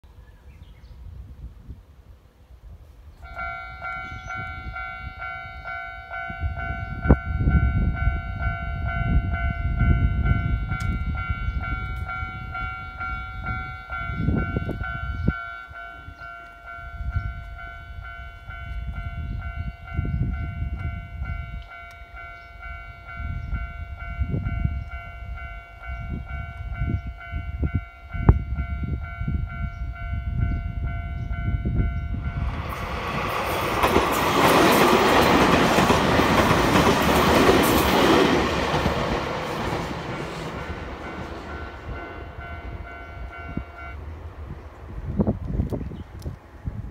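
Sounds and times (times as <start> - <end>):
level crossing warning bell: 3.2 - 44.1
train wheels rushing on rails: 30.8 - 46.9.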